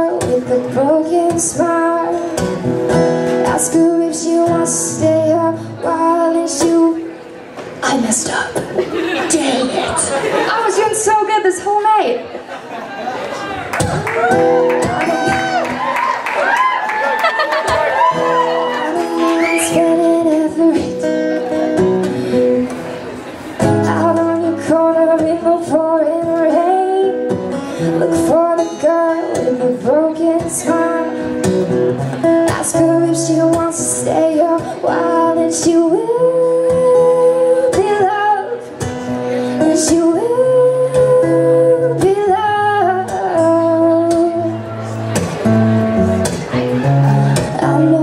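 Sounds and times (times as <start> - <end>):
woman singing: 0.0 - 2.6, 3.3 - 7.1, 18.8 - 21.3, 23.6 - 31.5, 32.2 - 44.7, 47.4 - 48.0
acoustic guitar: 0.0 - 48.0.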